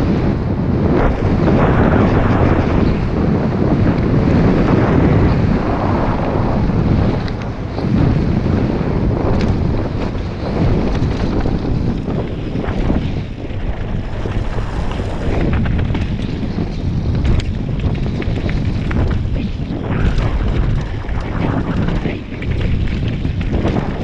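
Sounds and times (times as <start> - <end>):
bike rattling: 0.0 - 24.0
wind buffeting microphone: 0.0 - 24.0
tyres rolling over dirt and rocks: 9.2 - 24.0.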